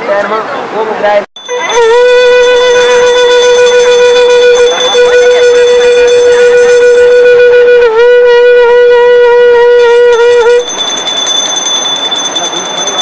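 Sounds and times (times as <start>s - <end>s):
wind instrument long note: 1.4s - 10.8s.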